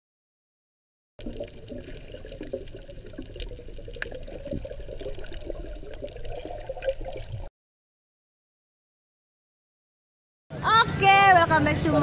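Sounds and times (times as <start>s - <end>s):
underwater bubbling and sloshing: 1.2s - 7.5s.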